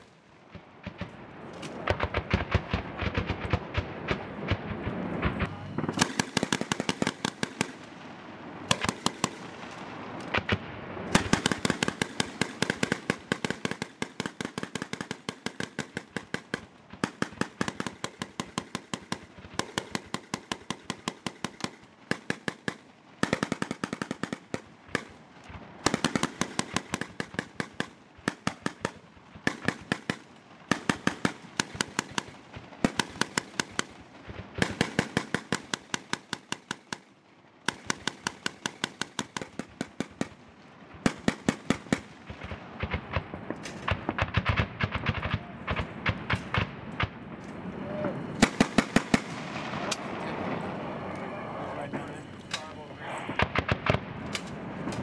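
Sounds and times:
automatic gunfire bursts: 0:05.8 - 0:07.9, 0:08.7 - 0:09.6, 0:10.3 - 0:37.1, 0:37.7 - 0:40.4, 0:41.0 - 0:43.2, 0:48.4 - 0:49.4.

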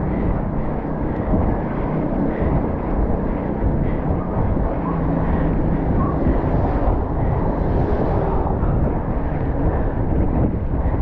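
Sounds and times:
wind rushing over microphone: 0:00.0 - 0:11.0.

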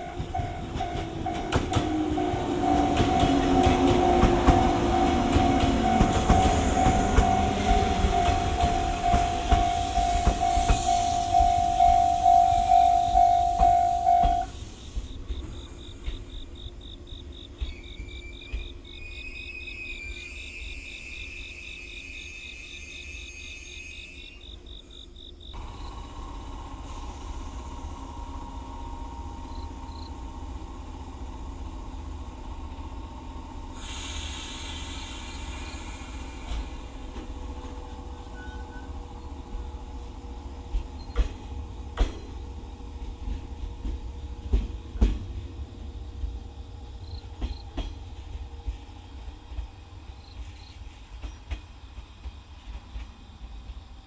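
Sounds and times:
electric train humming: 0:00.0 - 0:54.0
insects chirping: 0:00.1 - 0:54.0
compressed air hiss: 0:26.8 - 0:28.4, 0:33.7 - 0:37.2.

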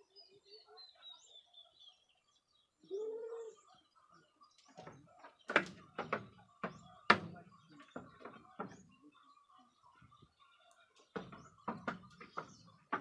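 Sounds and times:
faint bird chirps: 0:00.0 - 0:05.5
hooves knocking on wooden floor: 0:04.8 - 0:09.0, 0:11.1 - 0:13.0.

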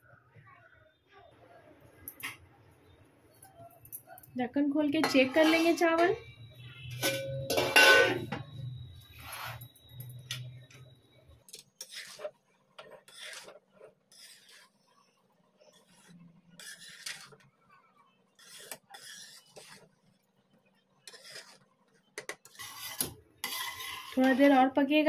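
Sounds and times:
metal spatula scraping rice: 0:05.0 - 0:06.0, 0:09.1 - 0:09.8, 0:11.5 - 0:20.3, 0:21.0 - 0:24.6.

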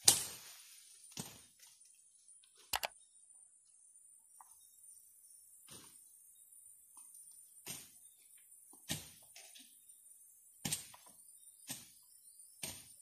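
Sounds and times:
hand tool chopping into ground: 0:11.6 - 0:12.0, 0:12.6 - 0:13.0.

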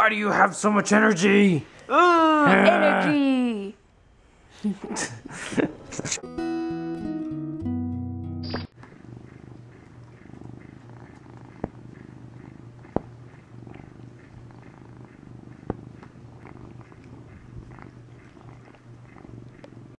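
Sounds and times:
cat purring: 0:08.7 - 0:20.0
cat licking paw: 0:08.8 - 0:20.0.

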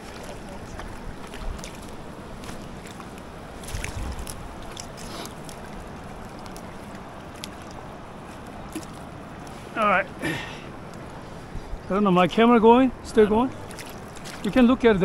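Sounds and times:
wind buffeting microphone: 0:00.0 - 0:05.0, 0:11.0 - 0:15.0
river water washing at bank: 0:00.0 - 0:15.0.

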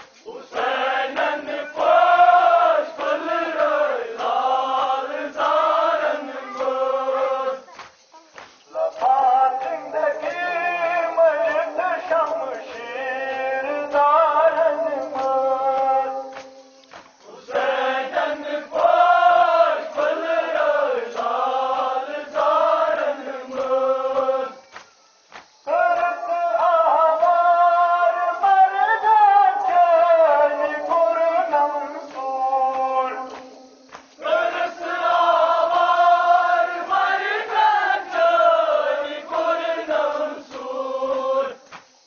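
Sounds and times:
sharp regular slaps: 0:00.0 - 0:04.5, 0:06.6 - 0:21.4, 0:23.6 - 0:26.1, 0:32.1 - 0:34.7, 0:40.5 - 0:42.0
male voices chanting in unison: 0:00.0 - 0:07.8, 0:08.6 - 0:42.0.

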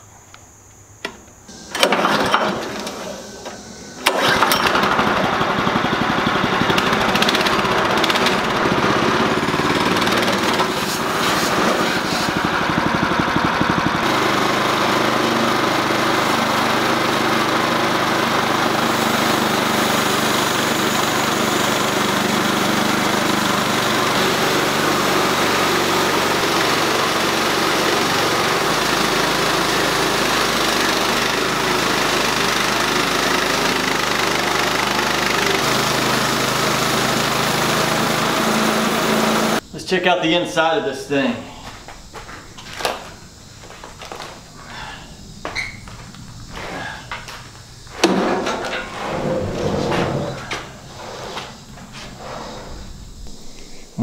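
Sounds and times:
small gas engine pull-started: 0:01.5 - 0:39.6, 0:45.6 - 0:52.6
band saw blade cutting log: 0:05.9 - 0:39.6.

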